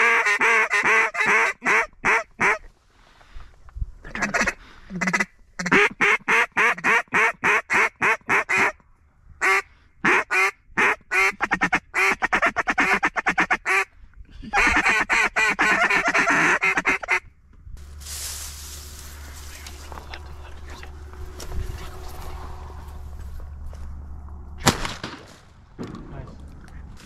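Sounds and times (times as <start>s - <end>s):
duck call quacking: 0.0s - 2.7s, 4.1s - 8.8s, 9.4s - 13.9s, 14.5s - 17.3s.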